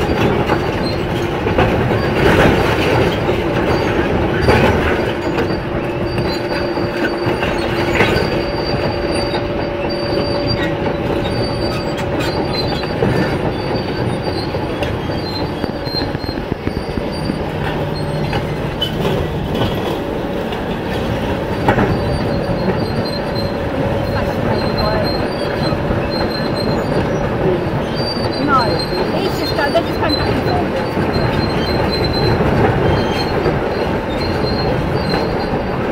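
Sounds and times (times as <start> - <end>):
excavator engine drone: 0.0 - 35.9
steel tracks squealing and clanking: 0.0 - 35.9.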